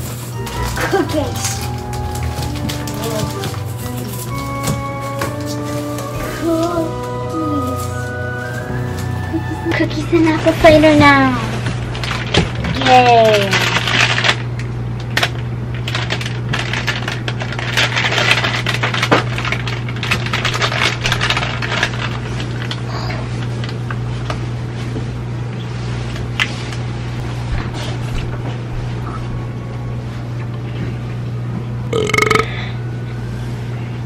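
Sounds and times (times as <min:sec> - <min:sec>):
handling clicks and crinkles: 0:00.0 - 0:09.2, 0:11.5 - 0:22.8
steady low hum: 0:26.9 - 0:34.0.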